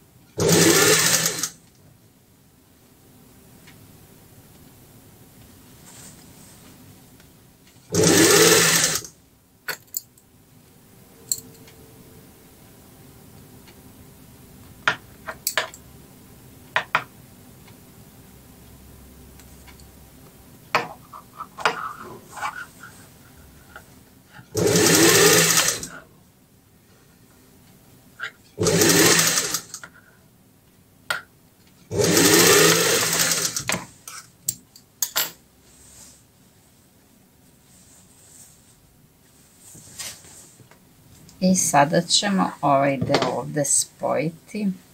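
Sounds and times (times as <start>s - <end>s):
sewing machine stitching: 0.4s - 1.6s, 7.9s - 9.1s, 24.5s - 26.0s, 28.6s - 29.8s, 31.9s - 33.7s.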